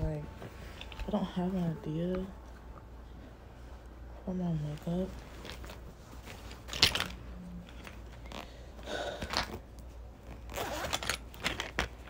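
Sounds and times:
zipper rasping: 7.8s - 8.6s, 10.2s - 12.0s.

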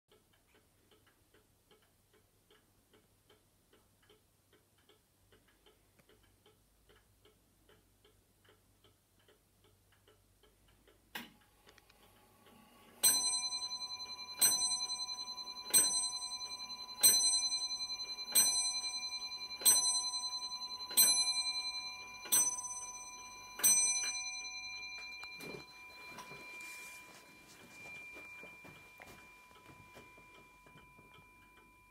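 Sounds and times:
clock click: 0.1s - 31.9s
clock ticking: 0.1s - 31.9s
clock bell striking: 13.0s - 31.9s.

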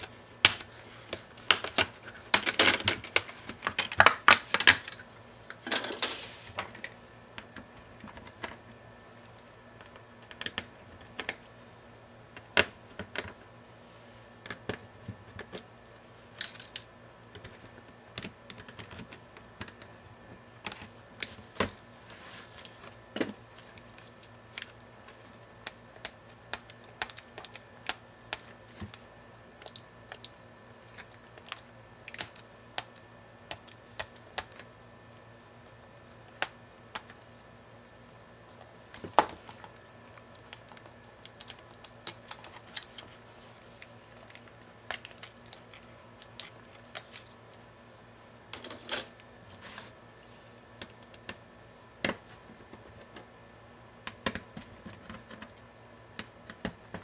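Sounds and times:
plastic laptop parts clicking and knocking: 0.0s - 5.0s, 9.8s - 11.4s, 12.3s - 13.5s, 16.4s - 19.9s, 54.0s - 57.0s.

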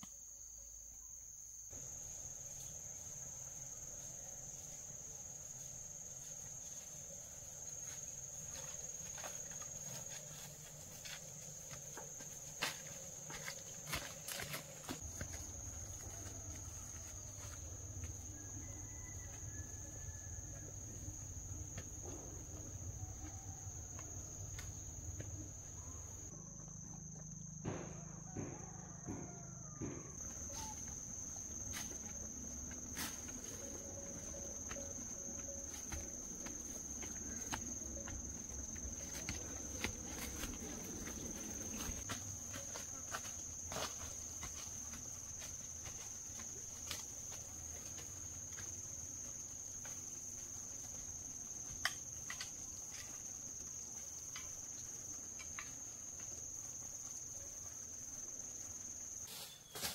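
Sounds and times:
insects trilling: 0.0s - 59.9s
rustles: 30.3s - 59.9s.

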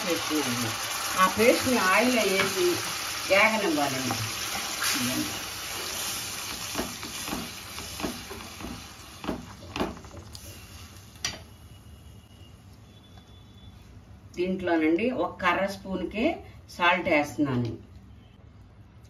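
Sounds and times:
wooden spatula knocking pan: 6.6s - 10.2s.

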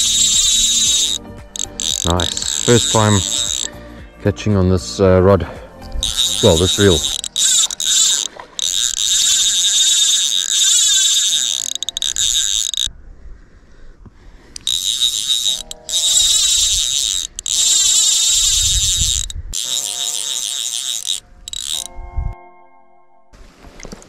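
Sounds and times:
fly reel drag buzzing: 0.0s - 3.8s, 5.8s - 12.9s, 14.5s - 22.0s.

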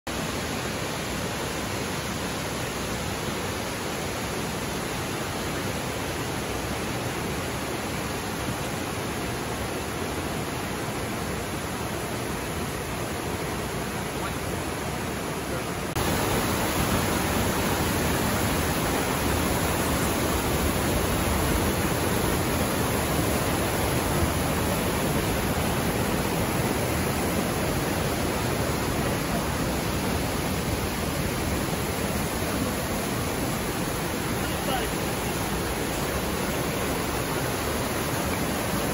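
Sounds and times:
stream rushing over boulders: 0.1s - 38.9s.

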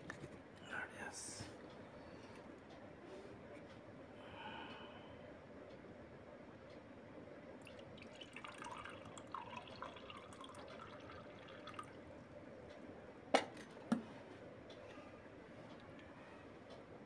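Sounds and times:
water gurgling into a glass: 7.6s - 12.1s.

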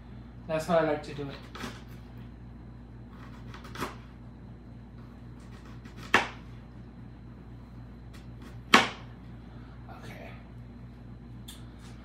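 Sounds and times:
knife slicing onion: 1.4s - 2.0s, 3.1s - 4.2s, 5.4s - 6.6s, 8.1s - 9.1s.

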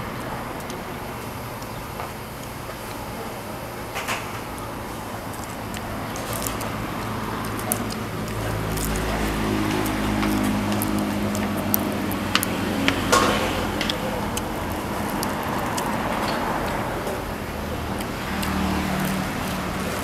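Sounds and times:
vehicle engine running: 0.0s - 20.0s
sharp clicks and knocks: 3.9s - 20.0s.

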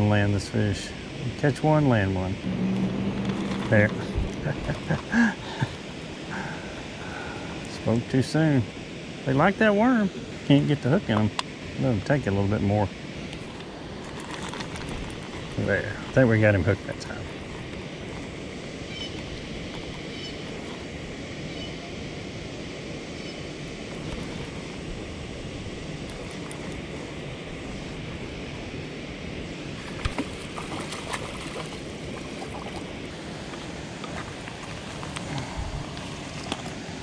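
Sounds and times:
wind noise on microphone: 2.4s - 5.1s, 35.2s - 36.6s.

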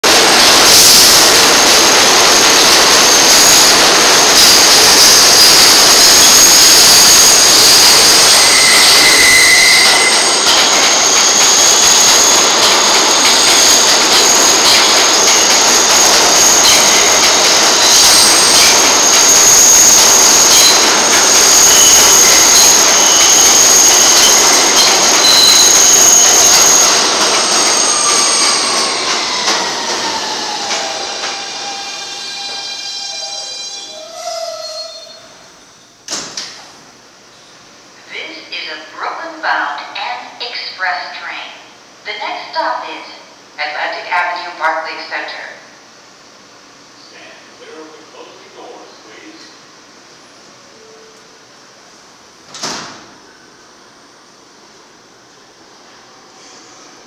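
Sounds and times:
rumble of passing train cars: 0.0s - 57.0s
train wheels squealing on track: 0.2s - 36.0s.

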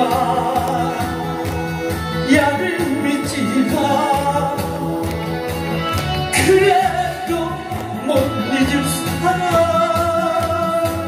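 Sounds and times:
karaoke backing music: 0.0s - 11.0s.

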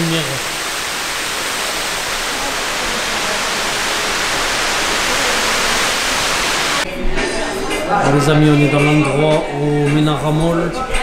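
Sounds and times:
fountain water splashing: 0.0s - 6.8s.

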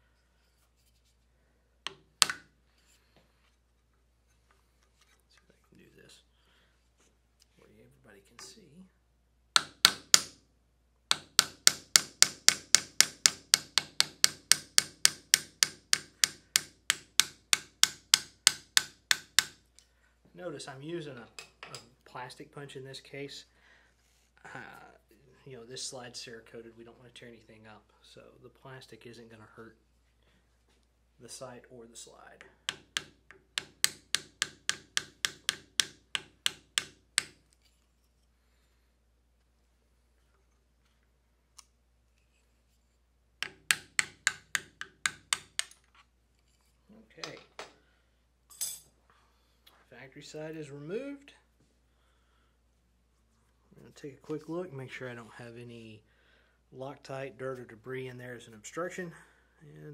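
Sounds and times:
hammer tapping a plastic punch: 11.1s - 19.6s, 32.7s - 37.4s.

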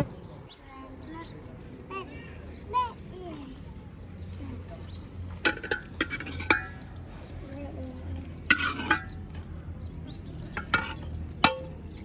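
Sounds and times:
metal dishes clinking: 5.4s - 6.9s, 8.4s - 9.4s, 10.5s - 12.0s.

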